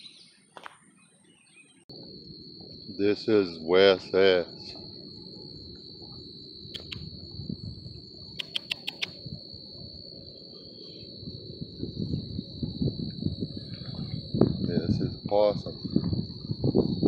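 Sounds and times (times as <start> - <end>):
crickets chirring: 0.0 - 17.0
sharp clicks: 6.8 - 7.1, 8.4 - 9.2.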